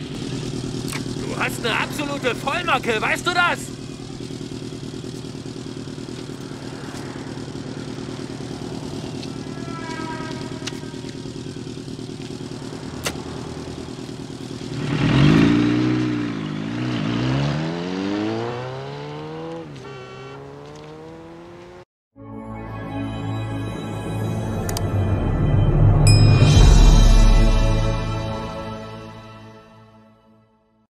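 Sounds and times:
motorcycle engines idling and revving: 0.0 - 21.9.

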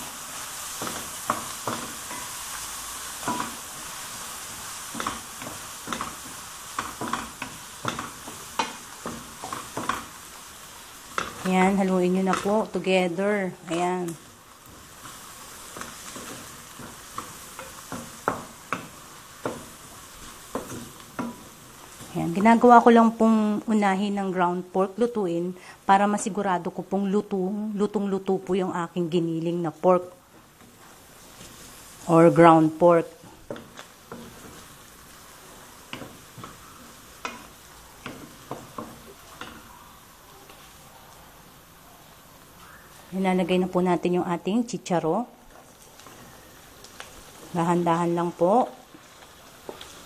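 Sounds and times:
wooden spoon scraping a pan: 0.0 - 23.0, 30.3 - 39.7, 45.5 - 50.0
meat sizzling in a pan: 0.0 - 50.0.

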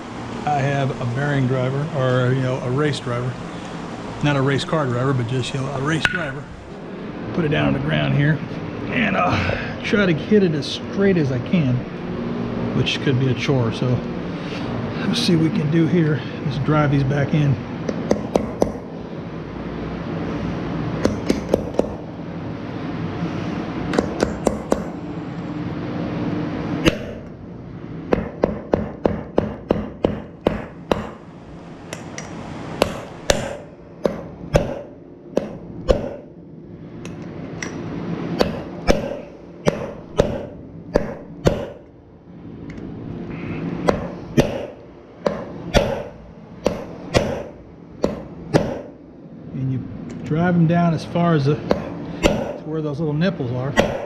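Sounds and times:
hammer striking metal: 6.0 - 6.5, 23.9 - 25.0, 26.8 - 27.3, 28.1 - 31.2, 31.9 - 36.3, 38.4 - 41.9, 43.8 - 49.0, 51.7 - 52.7, 53.8 - 54.0.

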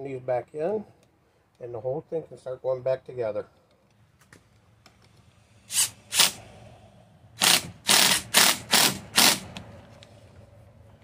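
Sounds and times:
impact driver hammering: 7.4 - 9.5.

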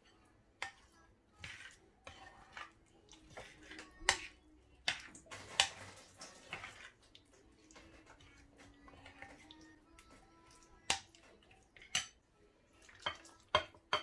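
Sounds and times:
metal spoon scraping ceramic bowl: 1.4 - 5.8.

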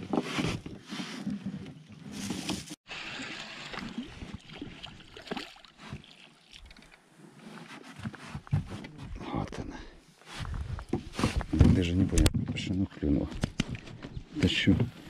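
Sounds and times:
water sloshing and splashing: 0.0 - 8.6.

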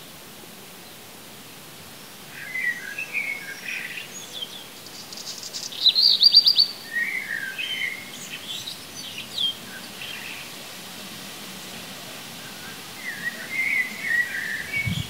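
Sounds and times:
faint hiss: 0.0 - 15.0
songbirds singing: 1.9 - 10.7, 12.1 - 15.0.

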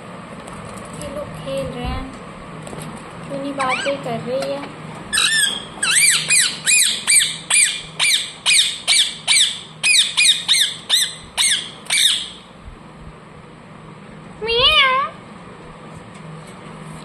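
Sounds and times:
parrot squawking: 3.6 - 4.1, 5.1 - 12.4.

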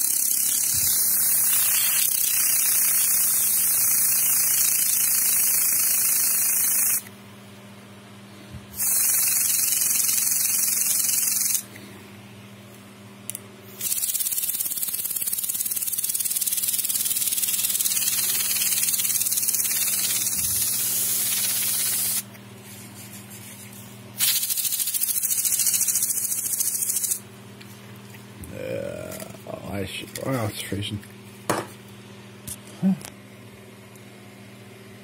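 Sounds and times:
compressed air hissing bursts: 0.0 - 7.0, 8.8 - 11.6, 13.8 - 22.2, 24.2 - 27.2.

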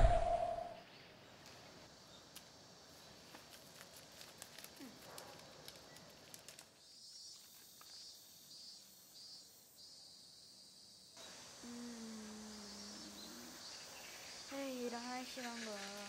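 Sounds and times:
faint insect chirping: 0.0 - 16.0
paper crackling: 3.3 - 6.8.

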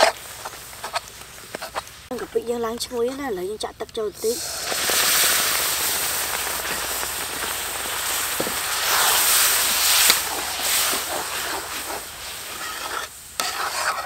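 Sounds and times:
metal spoon scraping wok: 0.0 - 1.9, 4.4 - 14.0
sauce boiling and sizzling in wok: 0.0 - 14.0.

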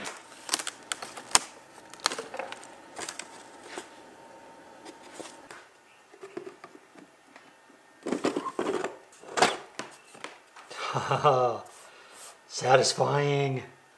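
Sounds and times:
plastic sheets clattering and scraping: 0.0 - 4.0, 8.0 - 10.3.

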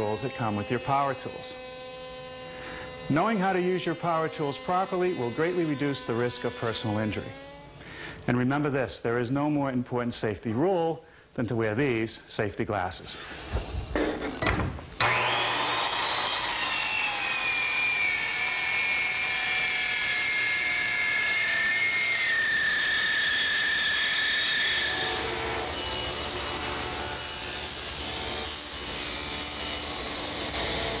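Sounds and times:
circular saw cutting plywood: 0.0 - 7.9, 13.2 - 31.0
table saw ripping plywood: 13.4 - 27.4.

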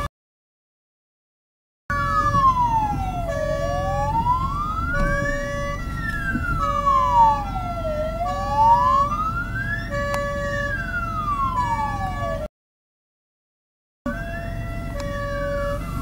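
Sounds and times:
ambulance siren wailing: 1.9 - 12.5, 14.1 - 16.0
low road rumble: 1.9 - 12.5, 14.1 - 16.0
two-note siren tone: 1.9 - 12.5, 14.1 - 16.0.

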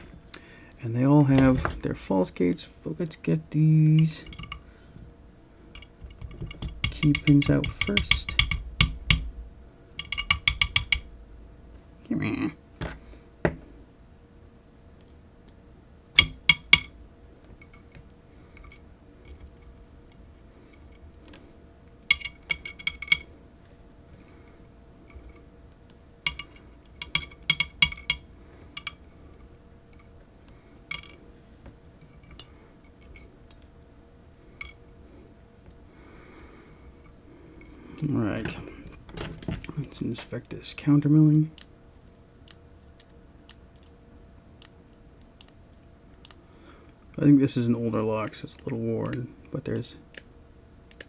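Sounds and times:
small metal parts clinking: 22.1 - 23.3, 30.9 - 31.2.

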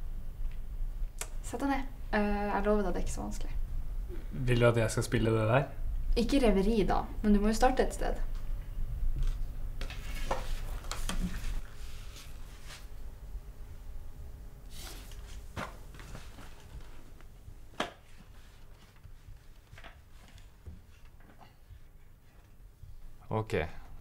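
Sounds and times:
low room hum: 0.0 - 24.0
knocks and shuffles of person moving: 9.1 - 13.5, 14.6 - 24.0.

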